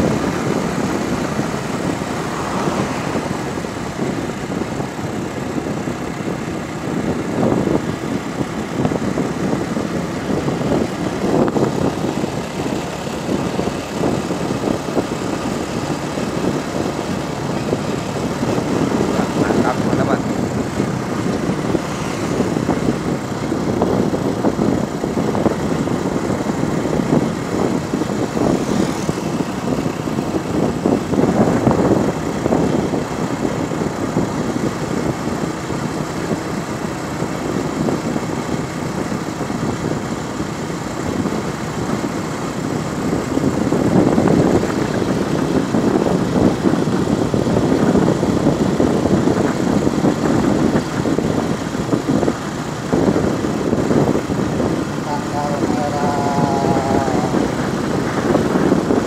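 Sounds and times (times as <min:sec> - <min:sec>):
vehicle engine and road noise: 0:00.0 - 0:59.0
wind buffeting microphone: 0:00.0 - 0:59.0.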